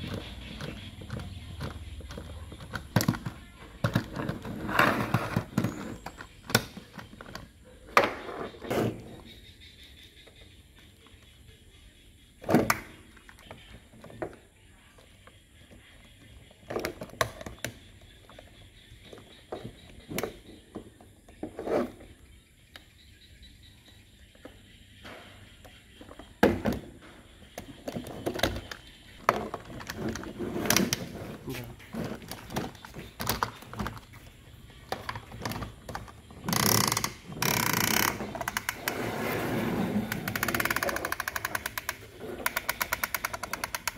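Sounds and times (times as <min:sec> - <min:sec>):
toy scraping on tabletop: 0:04.2 - 0:06.2, 0:29.8 - 0:32.6, 0:36.4 - 0:43.7
plastic toy parts clicking: 0:40.2 - 0:43.9.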